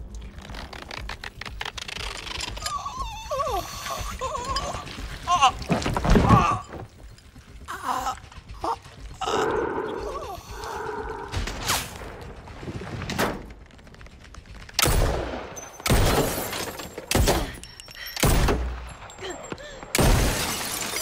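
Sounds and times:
person's choked cries: 0:02.6 - 0:06.6.

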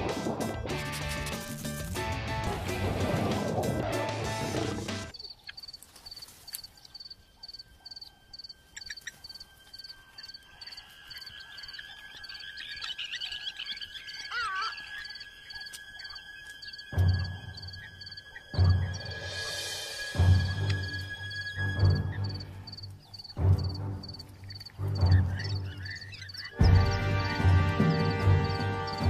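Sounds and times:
bird warbling: 0:05.1 - 0:19.3, 0:24.4 - 0:27.3
insect drone: 0:05.1 - 0:29.0.

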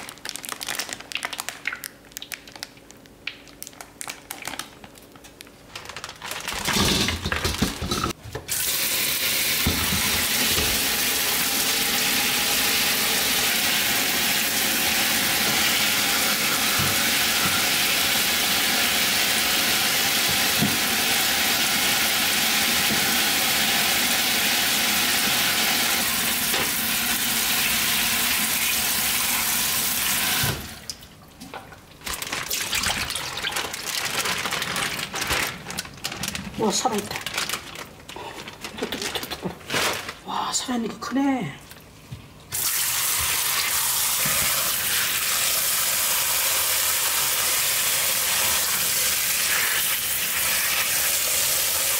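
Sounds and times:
plastic bag rustling: 0:00.0 - 0:08.2, 0:32.0 - 0:40.5.

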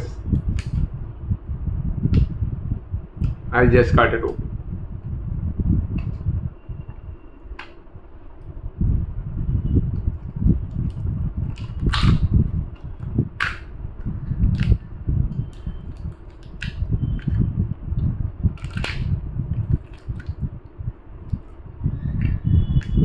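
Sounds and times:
sharp plastic clicks: 0:07.5 - 0:07.8, 0:10.7 - 0:14.8.

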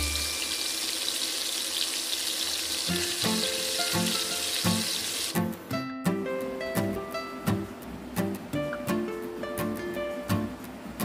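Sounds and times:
hot oil sizzling: 0:00.0 - 0:05.4
plucked-string background music: 0:02.9 - 0:11.0.

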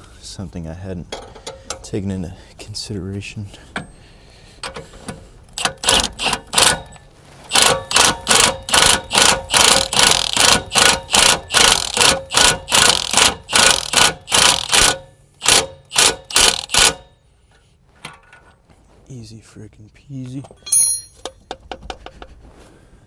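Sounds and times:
wrench rattling: 0:20.6 - 0:22.1.

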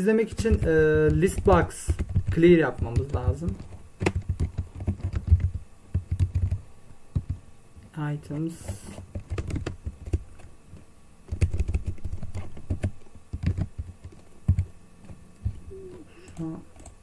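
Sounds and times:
man talking: 0:00.0 - 0:03.6
keyboard key clicks: 0:00.3 - 0:06.6.

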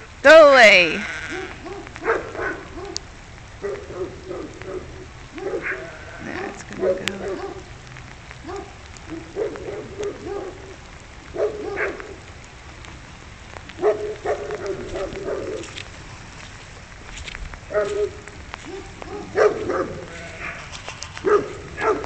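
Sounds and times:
dog barking: 0:01.3 - 0:03.0, 0:03.6 - 0:07.7, 0:08.4 - 0:12.2, 0:13.8 - 0:15.8, 0:17.7 - 0:22.0.

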